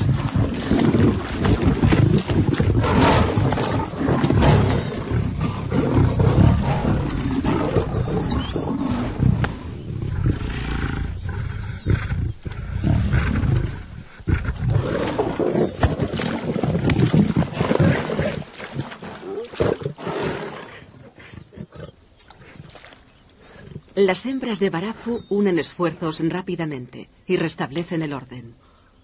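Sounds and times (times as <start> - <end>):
lions roaring while fighting: 0.0 - 20.9.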